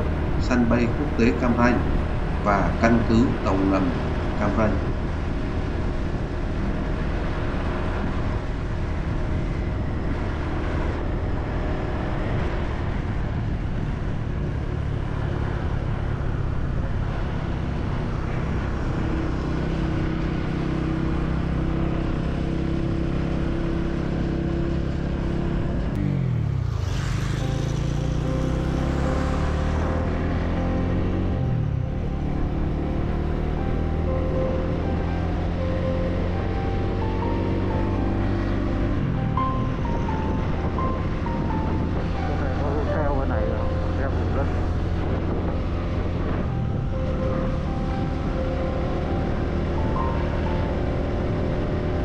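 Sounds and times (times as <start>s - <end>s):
motorcycle engine running: 0.0s - 42.9s, 43.5s - 52.0s
rushing noise: 26.0s - 52.0s.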